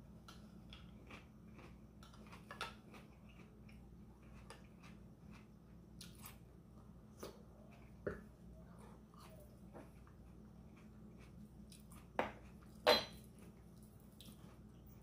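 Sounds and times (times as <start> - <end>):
chewing: 0.2 - 6.5, 7.1 - 15.0.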